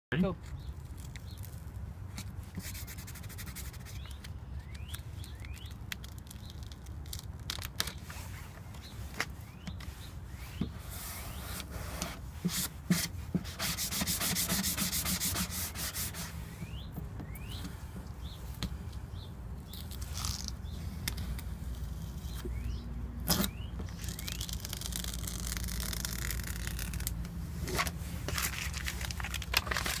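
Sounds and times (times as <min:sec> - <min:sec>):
squeegee scraping over tape: 0:00.4 - 0:16.8, 0:19.7 - 0:22.5, 0:23.2 - 0:30.0
tape being peeled: 0:00.4 - 0:19.0, 0:19.6 - 0:30.0
paper crinkling: 0:00.7 - 0:10.0, 0:23.3 - 0:30.0.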